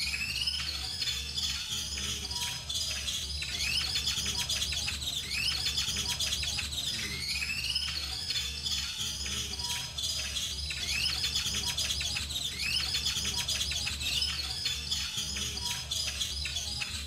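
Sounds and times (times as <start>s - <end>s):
high bird-like chirps: 0.0s - 17.0s
steady low hum: 1.8s - 7.4s, 9.0s - 17.0s.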